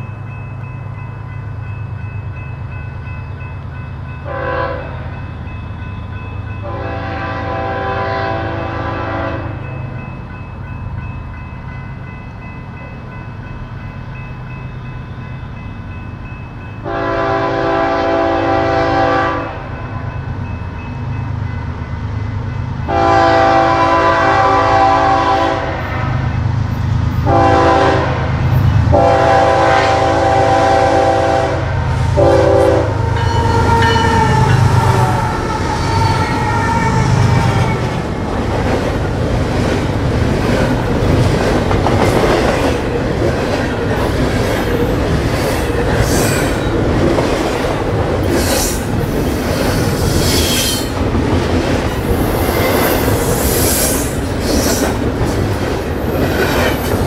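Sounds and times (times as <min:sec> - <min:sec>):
train air horn blasts: 0:04.2 - 0:05.1, 0:06.6 - 0:09.6, 0:16.8 - 0:19.7, 0:22.9 - 0:26.3, 0:27.2 - 0:37.8.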